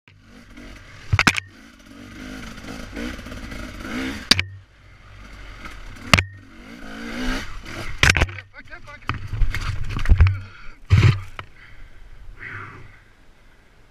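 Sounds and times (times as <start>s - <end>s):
motorcycle engine revving: 0.1s - 11.3s
sharp clattering knocks: 1.1s - 1.6s, 4.2s - 4.7s, 5.6s - 6.6s, 8.0s - 11.5s.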